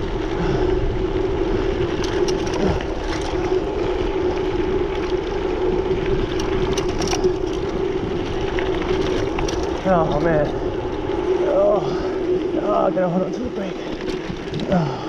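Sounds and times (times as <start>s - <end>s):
bike clicks and rattles: 0.0s - 15.0s
tyres on dirt: 0.0s - 15.0s
wind buffeting microphone: 0.0s - 15.0s.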